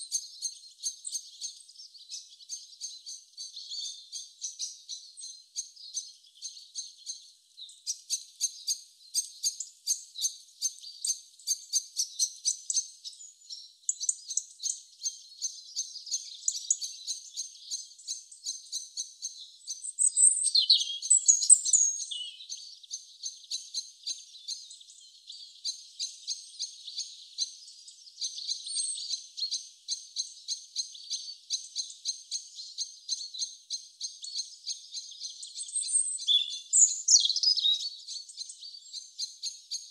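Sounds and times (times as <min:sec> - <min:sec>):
small birds chirping: 0:00.0 - 0:39.9
sweeping whistled bird notes: 0:00.0 - 0:39.9.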